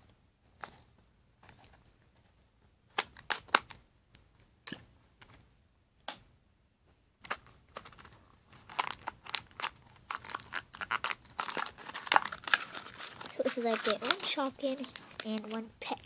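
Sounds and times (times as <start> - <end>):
plastic packet crinkling: 7.8 - 16.0.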